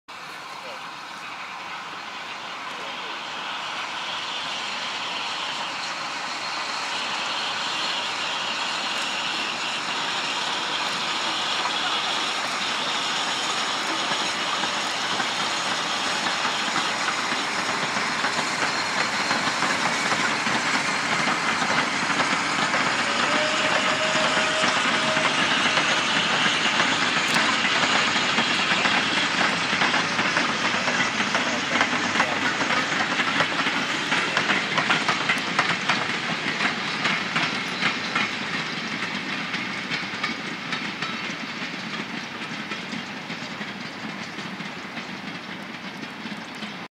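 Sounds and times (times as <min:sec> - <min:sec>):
steam locomotive exhaust: 0:00.1 - 0:46.9
train wheels clicking over rail joints: 0:00.1 - 0:46.9.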